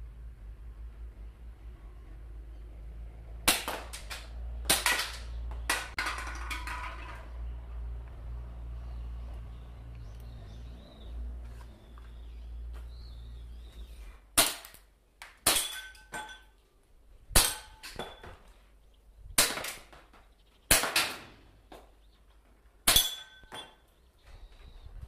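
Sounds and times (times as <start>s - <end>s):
airsoft pistol shots: 20.7s - 21.4s.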